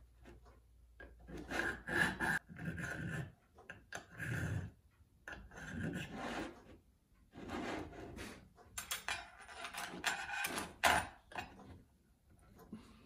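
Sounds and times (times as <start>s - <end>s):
tools and vise clicking: 0.2s - 6.8s, 8.5s - 12.7s
hand file strokes: 1.2s - 3.4s, 7.3s - 8.5s.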